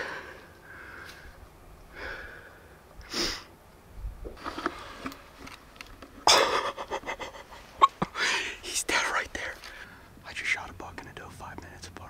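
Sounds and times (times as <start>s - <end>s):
person sniffing: 3.1s - 3.5s.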